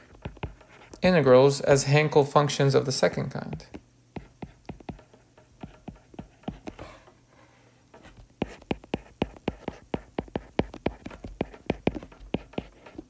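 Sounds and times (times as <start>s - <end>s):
stylus tapping on tablet screen: 0.0s - 1.0s, 3.4s - 6.8s, 7.9s - 13.0s.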